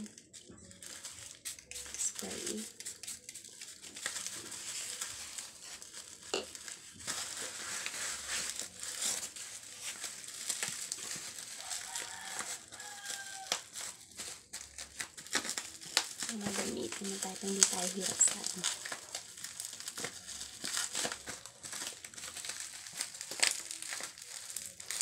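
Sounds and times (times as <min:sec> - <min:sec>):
bubble wrap crinkling: 0:00.0 - 0:25.0.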